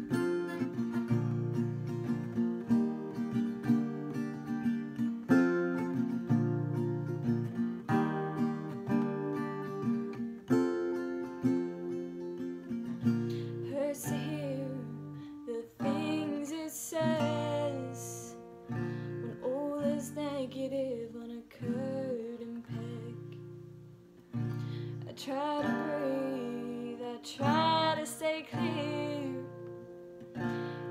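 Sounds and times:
acoustic guitar strumming: 0:00.0 - 0:30.9
woman singing: 0:13.4 - 0:18.6, 0:19.2 - 0:23.5, 0:24.9 - 0:30.2.

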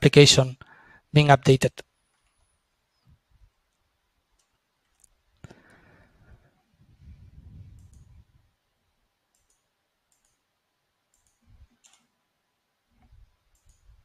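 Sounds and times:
faint clicks: 0:03.7 - 0:05.8, 0:07.7 - 0:08.2, 0:09.3 - 0:10.4, 0:11.1 - 0:12.1, 0:13.0 - 0:14.0.

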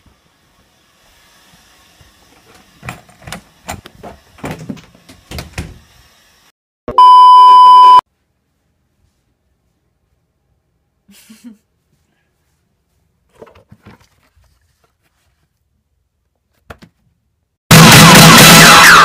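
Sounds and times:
high beep tone: 0:06.9 - 0:08.0.

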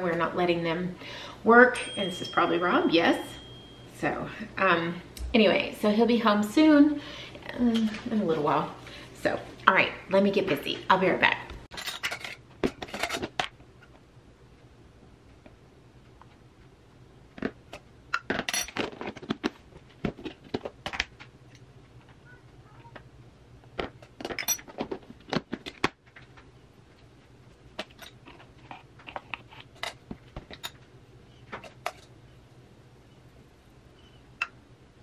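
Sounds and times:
utensils clinking on metal sieve: 0:11.7 - 0:13.3.

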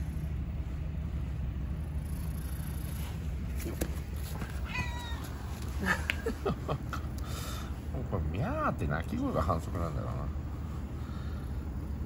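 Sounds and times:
steady low rumble: 0:00.0 - 0:12.0
kitten meowing: 0:04.6 - 0:05.4.

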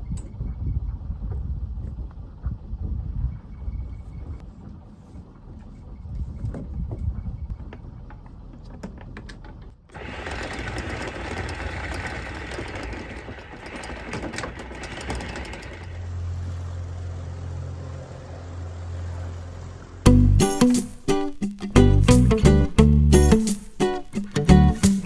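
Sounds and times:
low engine hum: 0:00.0 - 0:21.1
anchor windlass whirring: 0:04.3 - 0:25.0
anchor chain clacking: 0:09.0 - 0:16.2.

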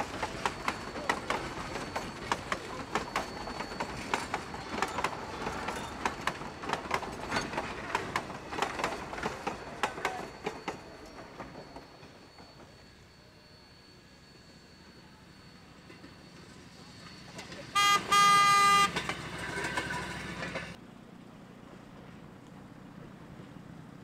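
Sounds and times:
railroad car wheels clacking: 0:00.0 - 0:12.9, 0:15.8 - 0:20.8.

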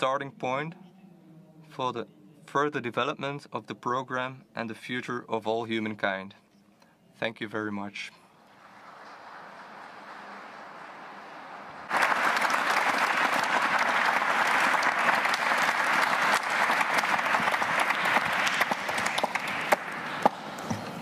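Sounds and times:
audience applauding: 0:08.4 - 0:21.0.

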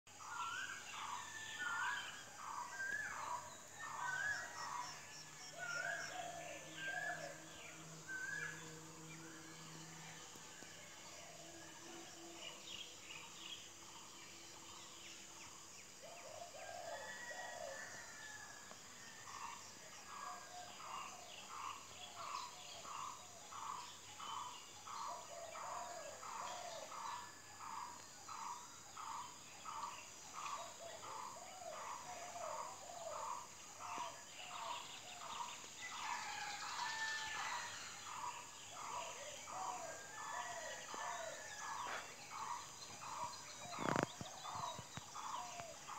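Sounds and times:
bird chirps: 0:34.0 - 0:45.9.

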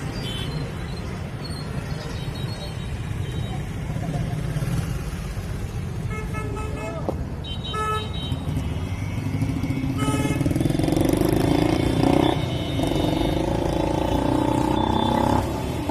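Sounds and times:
vehicle engine revving: 0:10.4 - 0:15.9.

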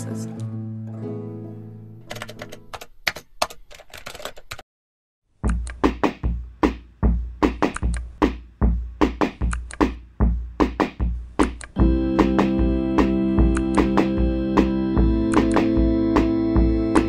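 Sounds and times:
computer keyboard typing: 0:02.1 - 0:04.6
electronic drum beat: 0:05.4 - 0:17.0.

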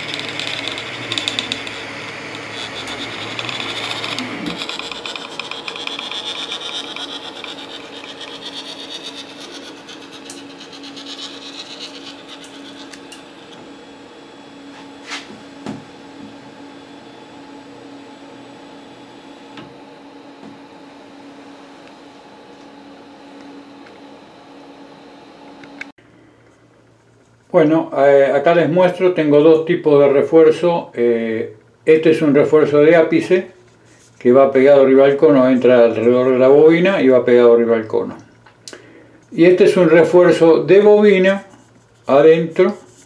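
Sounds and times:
stepper motors whining: 0:00.0 - 0:24.3
cooling fans humming: 0:00.0 - 0:43.0.

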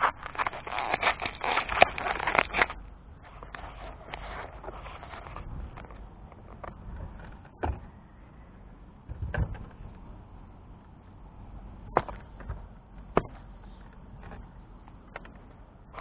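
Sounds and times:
knocks and clatters of gear: 0:00.0 - 0:08.0, 0:11.9 - 0:16.0
low steady rumble: 0:00.0 - 0:16.0.

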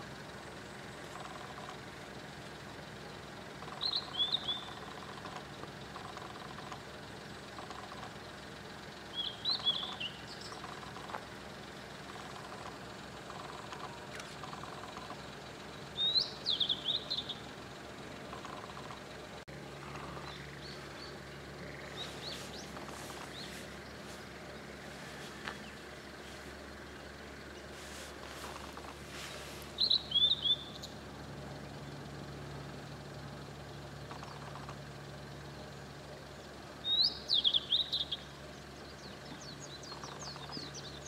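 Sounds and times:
faint high bird chirps: 0:03.6 - 0:06.7, 0:09.1 - 0:11.2, 0:12.0 - 0:17.6, 0:19.8 - 0:31.0, 0:33.7 - 0:34.8, 0:36.8 - 0:41.0
bird singing high gliding notes: 0:03.7 - 0:05.2, 0:09.1 - 0:10.9, 0:14.5 - 0:17.6, 0:19.7 - 0:32.0, 0:36.8 - 0:41.0.

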